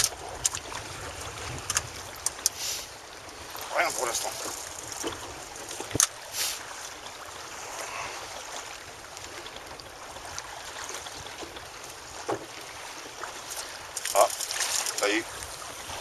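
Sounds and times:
wind on microphone: 0:00.0 - 0:06.8, 0:14.5 - 0:16.0
water lapping around a boat: 0:00.0 - 0:16.0.

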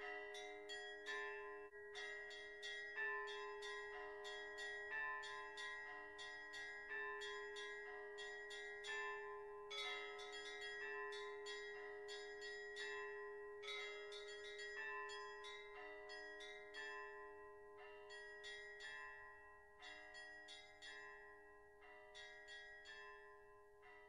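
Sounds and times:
higher church bells striking: 0:00.0 - 0:16.2.

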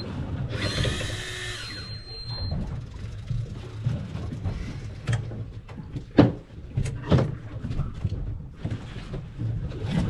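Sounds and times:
sharp knocks and thumps: 0:02.5 - 0:10.0.

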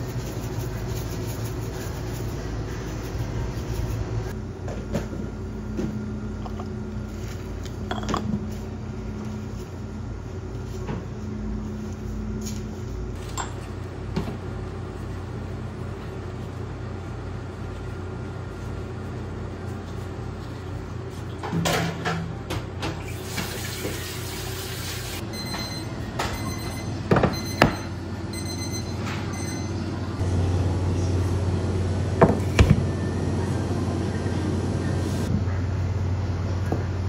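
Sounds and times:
high beeping: 0:25.2 - 0:30.1.

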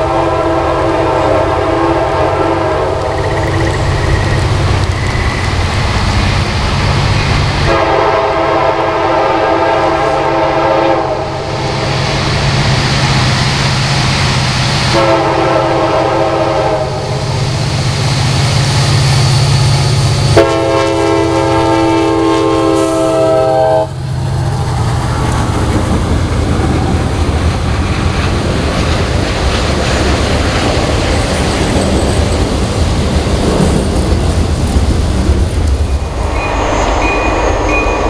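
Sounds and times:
train air horn blasts: 0:00.0 - 0:03.2, 0:07.6 - 0:11.5, 0:14.9 - 0:17.3, 0:20.3 - 0:24.8
diesel locomotive engines rumbling: 0:00.0 - 0:38.0
train wheels clacking on rail joints: 0:24.3 - 0:38.0.

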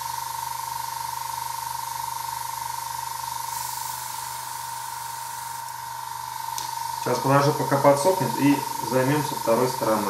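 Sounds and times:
steady high-pitched whine: 0:00.0 - 0:10.0
airbrush hissing: 0:02.7 - 0:10.0.

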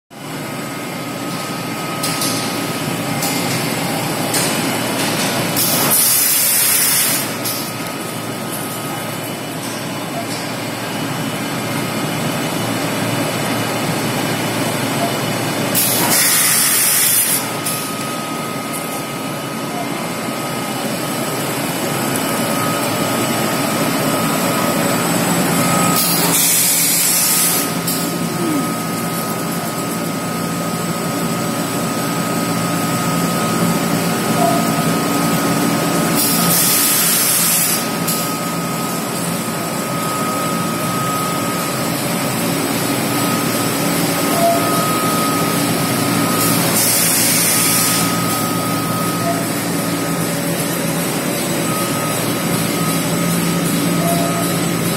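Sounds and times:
machine hum: 0:00.2 - 0:36.2
high machine whine: 0:00.2 - 0:54.9.

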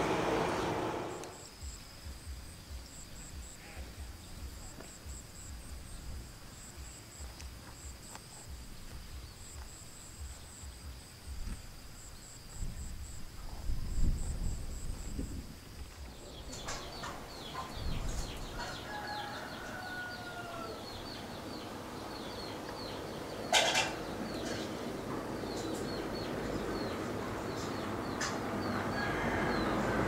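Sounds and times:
short loud noise: 0:00.0 - 0:01.3
truck engine approaching: 0:00.0 - 0:01.4, 0:21.1 - 0:30.0
small birds chirping: 0:02.4 - 0:13.0, 0:15.1 - 0:29.9
rooster crowing: 0:18.4 - 0:21.2, 0:28.6 - 0:30.0.

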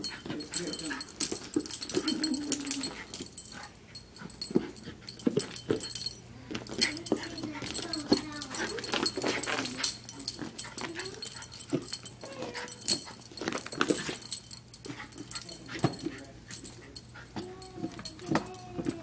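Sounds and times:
dog crying: 0:12.2 - 0:13.0.

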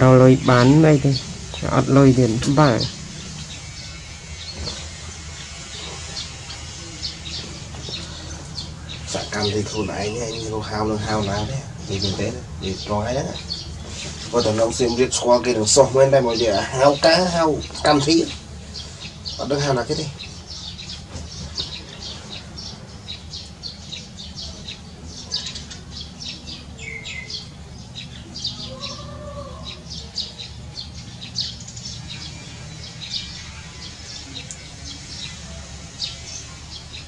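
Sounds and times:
small birds chirping: 0:00.0 - 0:37.0
steady low hum: 0:00.0 - 0:37.0.

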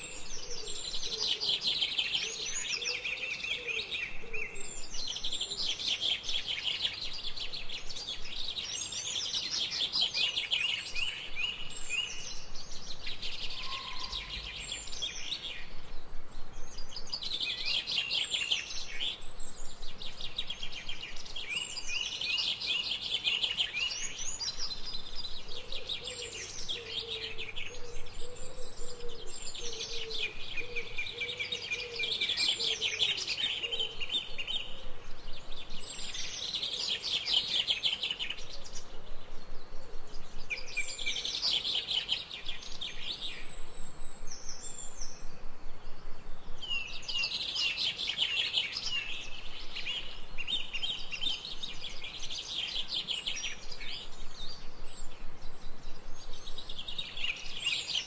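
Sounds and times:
songbirds trilling: 0:00.0 - 0:58.0
low bird call: 0:13.2 - 0:15.8.

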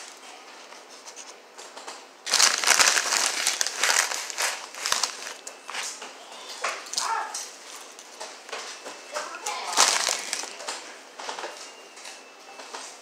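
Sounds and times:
foil chip bag crinkling: 0:02.2 - 0:05.8, 0:09.4 - 0:10.8.

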